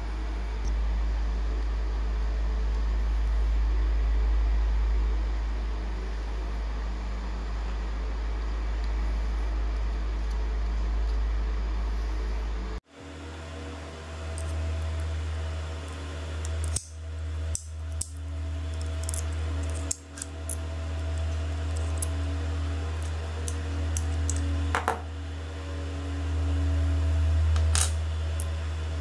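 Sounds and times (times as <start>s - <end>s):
steady low hum: 0.0s - 29.0s
small metallic clicks: 16.4s - 20.6s.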